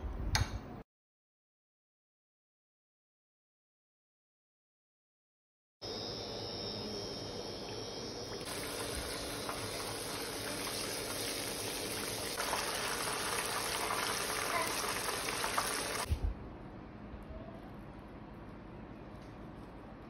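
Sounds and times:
chicken sizzling in hot oil: 0:08.4 - 0:16.1.

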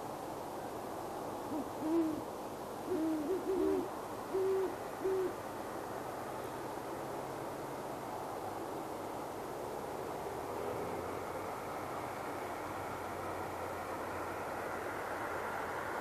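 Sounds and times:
steady hiss: 0:00.0 - 0:16.0
owl hooting: 0:01.4 - 0:02.2, 0:02.8 - 0:05.4.

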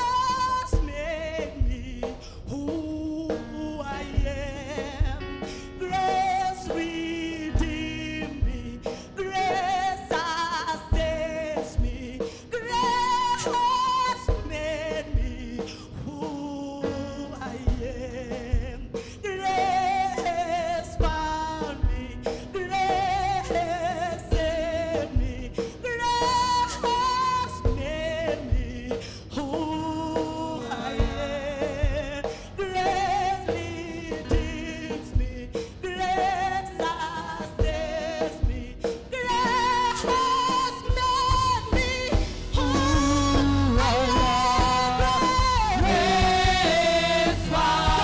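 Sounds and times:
woman singing lead: 0:00.0 - 0:48.0
band with low beat: 0:19.6 - 0:36.5, 0:37.6 - 0:48.0
backing singers: 0:29.8 - 0:34.3, 0:42.2 - 0:48.0.

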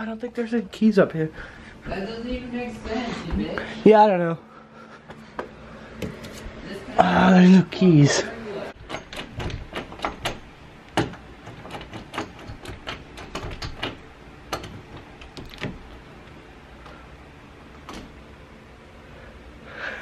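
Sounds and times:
door clicks and knocks: 0:08.8 - 0:16.0.

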